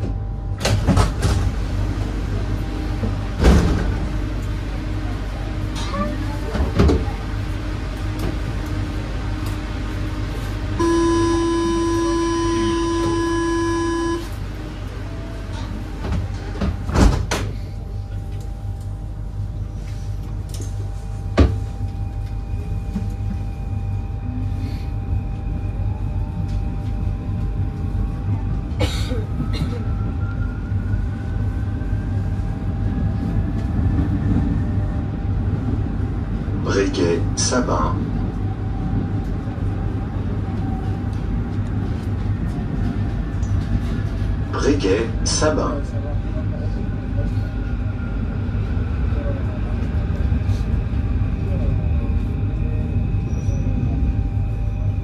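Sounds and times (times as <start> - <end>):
low train hum: 0.0 - 55.0
electronic door warning buzzer: 10.8 - 14.3.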